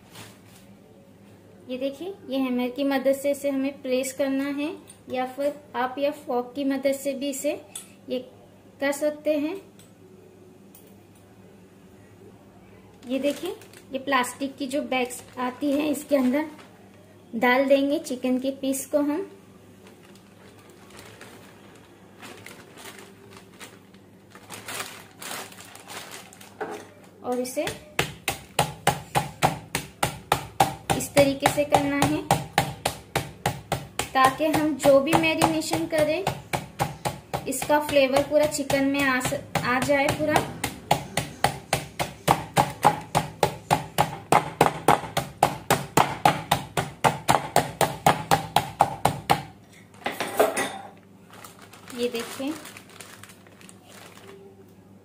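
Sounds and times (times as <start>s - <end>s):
plastic bag crinkling: 13.0s - 14.1s, 14.9s - 17.0s, 19.8s - 27.1s, 51.2s - 54.7s
meat mallet pounding chicken: 27.7s - 49.5s.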